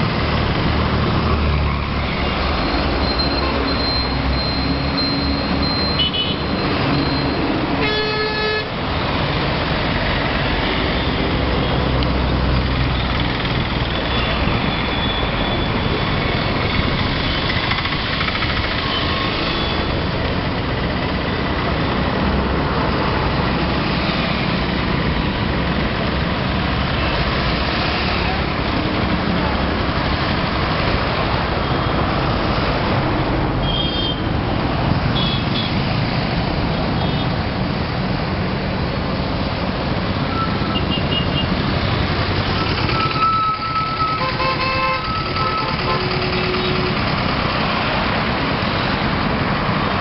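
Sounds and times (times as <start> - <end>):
street traffic: 0.0 - 50.0
vehicle horn: 7.8 - 8.7, 44.2 - 47.0.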